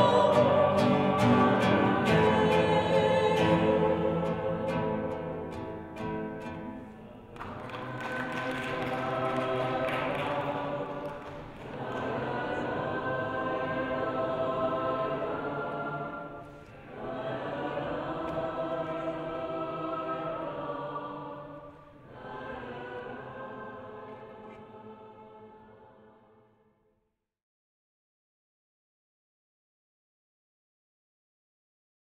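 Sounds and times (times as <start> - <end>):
voices singing in harmony: 0.0 - 6.3, 7.4 - 26.4.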